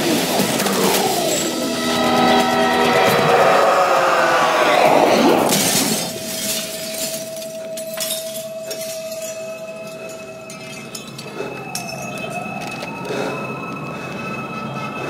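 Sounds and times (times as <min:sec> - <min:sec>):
steady held tone: 0:00.7 - 0:12.9
plate-glass window shattering: 0:05.5 - 0:09.5
glass shards clinking: 0:05.5 - 0:12.5.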